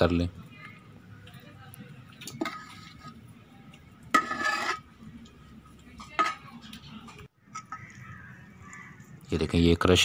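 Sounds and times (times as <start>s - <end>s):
metal spoon scraping a metal pot: 2.2s - 3.3s, 4.0s - 5.1s, 5.9s - 8.0s.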